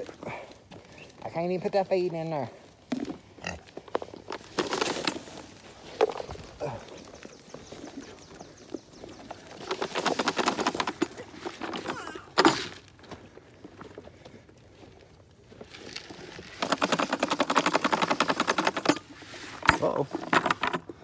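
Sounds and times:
footsteps crunching on gravel: 0:00.0 - 0:09.7, 0:12.6 - 0:16.6.

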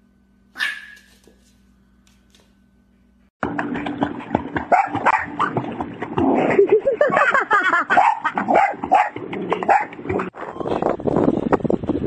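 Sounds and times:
dog barking and yelping: 0:00.6 - 0:01.2, 0:07.9 - 0:10.0
water splashing: 0:03.4 - 0:10.3.

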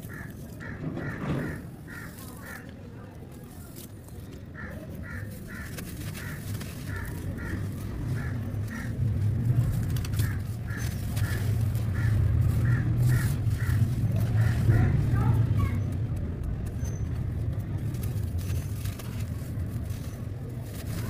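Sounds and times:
low rumble: 0:06.9 - 0:21.0.

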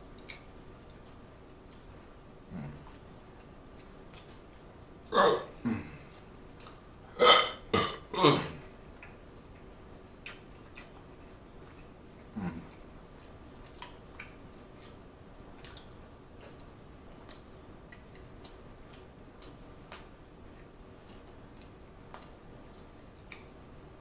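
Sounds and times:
wet chewing mouth clicks: 0:00.1 - 0:02.0, 0:02.7 - 0:06.8, 0:09.0 - 0:15.0, 0:15.6 - 0:23.6
person humming: 0:02.5 - 0:02.9, 0:05.2 - 0:06.2, 0:12.3 - 0:12.8.

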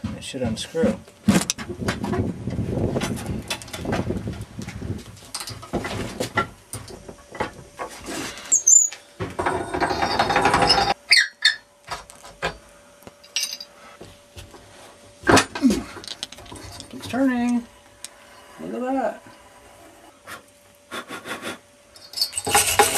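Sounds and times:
short high squeaks: 0:08.5 - 0:09.0, 0:09.9 - 0:11.7
scraping and rattling: 0:09.3 - 0:11.0, 0:22.0 - 0:22.9.

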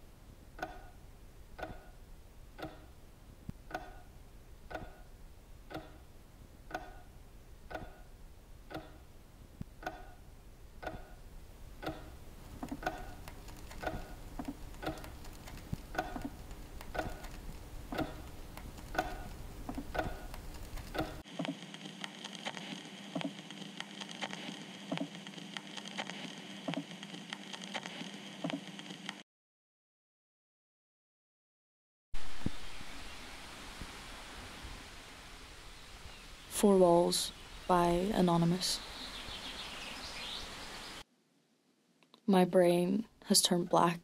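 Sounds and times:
clock ticking: 0:00.5 - 0:21.2
faint hiss: 0:32.2 - 0:41.8.

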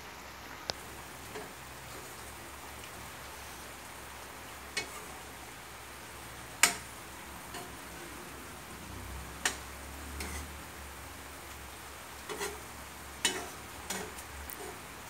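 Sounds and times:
faint steady hiss: 0:00.0 - 0:15.0
metal spatula clinking on pan: 0:06.6 - 0:06.9, 0:07.5 - 0:07.8, 0:13.2 - 0:14.8.

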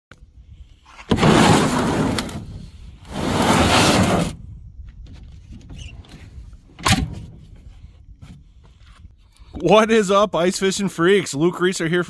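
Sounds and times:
plastic case scraping across truck bed: 0:00.9 - 0:04.5.

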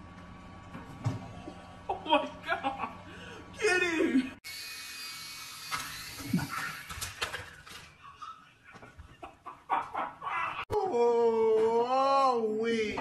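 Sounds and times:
toy drone rotors whirring: 0:04.4 - 0:07.8.

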